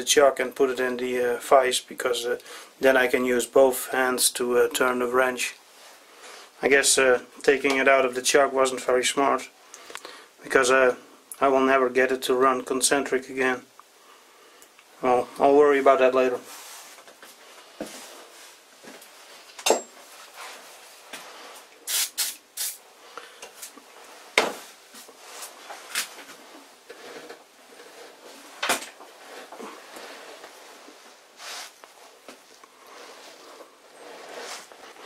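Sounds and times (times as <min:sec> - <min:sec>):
faint metal scraping: 0:23.5 - 0:35.0.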